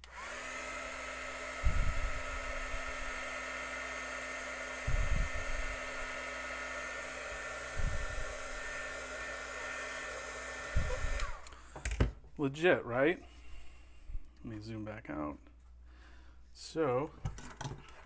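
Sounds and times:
heat gun blowing: 0.0 - 12.0.

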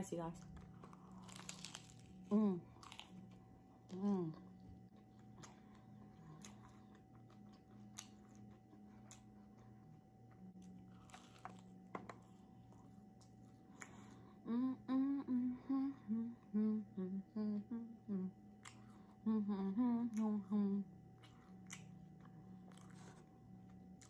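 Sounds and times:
faint chewing: 0.4 - 4.2, 4.9 - 14.3, 18.6 - 19.2, 21.2 - 24.0
woman humming a tune: 2.3 - 2.8, 3.9 - 4.6, 14.4 - 18.4, 19.2 - 21.0.

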